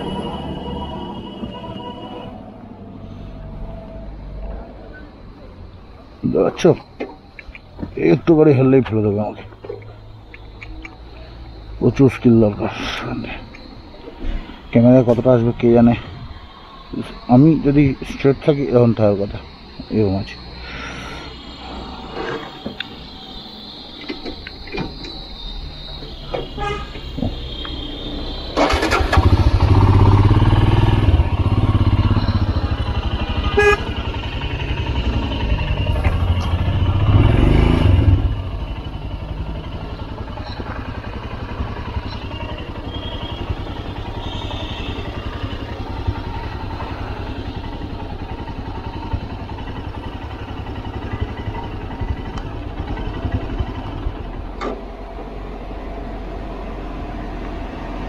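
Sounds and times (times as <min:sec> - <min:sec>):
motorcycle engine under load: 0:25.9 - 0:58.0.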